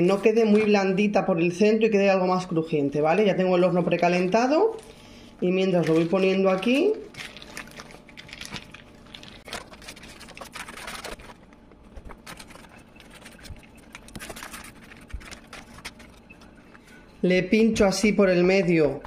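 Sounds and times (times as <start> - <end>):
baking paper crinkling: 0.0 - 1.2, 2.4 - 17.0.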